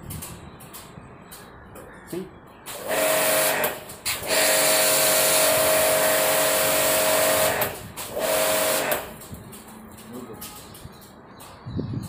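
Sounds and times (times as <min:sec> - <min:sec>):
high-pressure water jet hissing: 0:02.7 - 0:09.2
pressure washer motor whine: 0:02.8 - 0:09.2.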